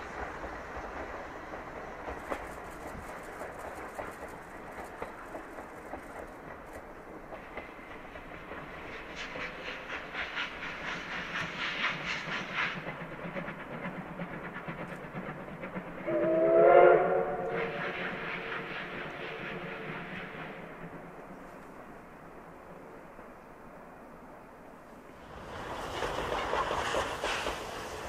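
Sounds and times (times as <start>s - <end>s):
steam locomotive chuffing: 0.0s - 22.1s, 25.1s - 28.0s
train rattling: 0.0s - 28.0s
steam whistle blowing: 16.0s - 20.4s.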